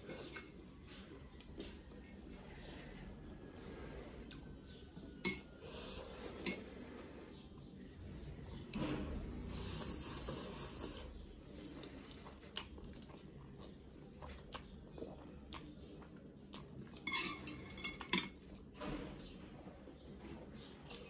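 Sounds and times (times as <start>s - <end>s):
chewing with wet clicks: 11.5s - 17.1s.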